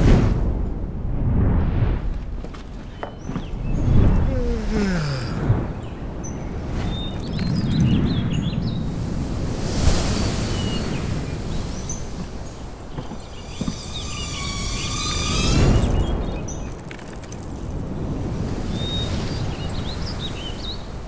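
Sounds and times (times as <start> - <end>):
rushing wind-like noise: 0.0 - 21.0
birds chirping: 2.7 - 9.2, 10.0 - 21.0.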